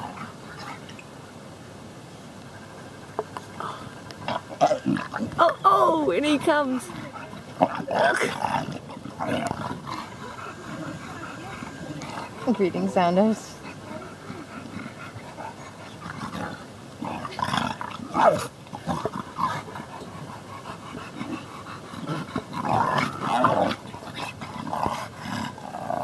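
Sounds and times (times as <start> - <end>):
animals growling and yelping: 0.0 - 1.0, 3.6 - 26.0.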